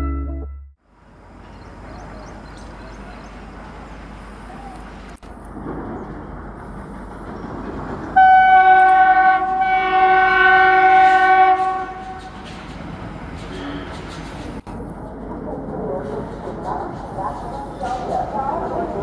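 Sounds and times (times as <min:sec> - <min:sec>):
diesel locomotive engine rumble: 0:00.0 - 0:19.0
locomotive horn blast: 0:08.2 - 0:12.5.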